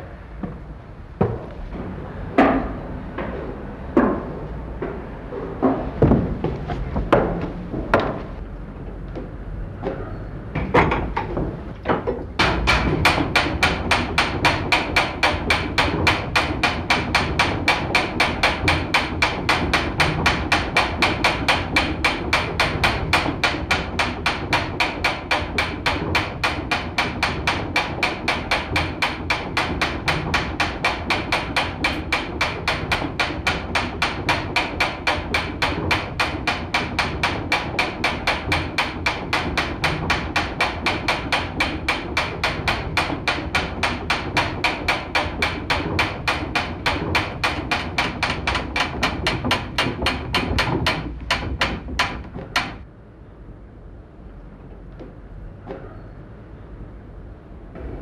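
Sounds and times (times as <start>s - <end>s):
scattered knocks: 5.6s - 8.3s, 10.6s - 52.9s
clock gearwork clicking: 12.4s - 52.8s.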